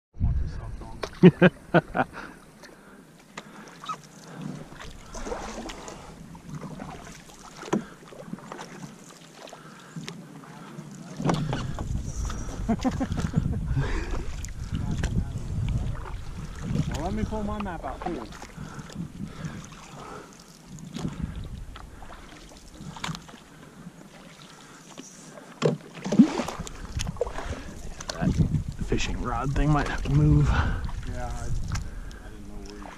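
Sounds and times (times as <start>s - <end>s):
wind rumble on microphone: 0.1s - 1.0s, 11.2s - 19.8s, 20.7s - 23.2s, 26.5s - 32.9s
paddles dipping in water: 0.8s - 32.9s
water splashes and drips: 3.3s - 13.4s, 14.0s - 32.9s.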